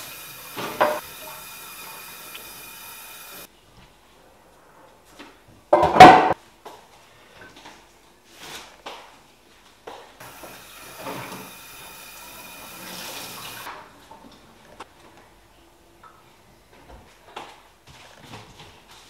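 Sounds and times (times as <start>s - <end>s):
tap running into sink: 0.0s - 3.5s, 10.2s - 12.1s.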